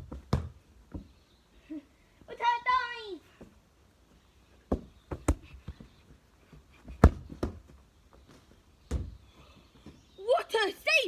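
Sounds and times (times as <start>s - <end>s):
football kicked on grass: 0.0s - 1.1s, 4.7s - 5.8s, 6.8s - 9.2s.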